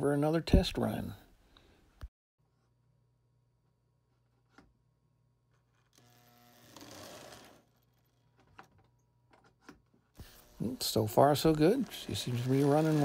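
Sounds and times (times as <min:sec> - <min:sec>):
toy train motor whirring: 0:06.0 - 0:08.0, 0:10.2 - 0:13.0.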